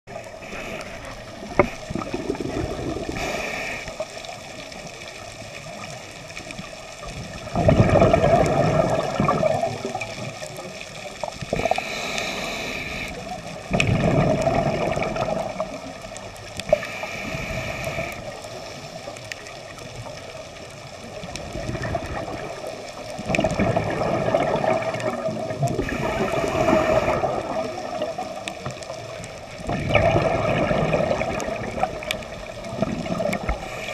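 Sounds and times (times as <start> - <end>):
regulator hissing on inhale: 0.2 - 2.0, 3.0 - 4.3, 11.6 - 13.4, 16.7 - 19.0, 25.8 - 27.5, 33.4 - 33.9
bubbling on exhale: 0.2 - 4.1, 7.4 - 10.2, 11.5 - 16.0, 21.4 - 28.4, 29.6 - 33.9.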